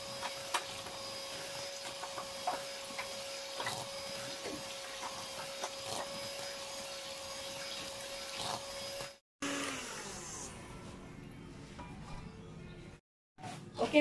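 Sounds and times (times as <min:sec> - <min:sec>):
electric hand mixer whining: 0:00.0 - 0:10.8.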